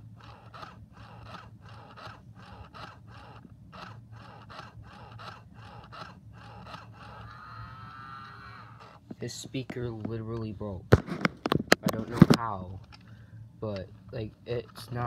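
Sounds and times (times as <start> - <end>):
low hum: 0.0 - 14.9
broken speaker crackling: 8.2 - 13.0.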